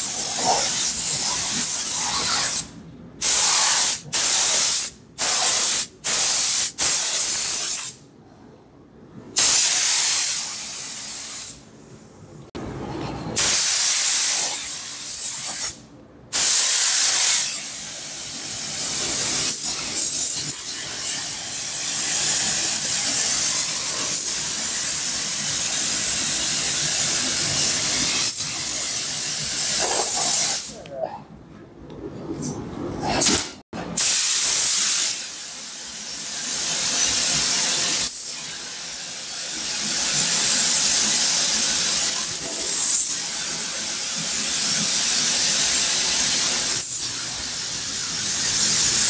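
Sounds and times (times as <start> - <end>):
paint spray gun hissing: 34.0 - 49.0.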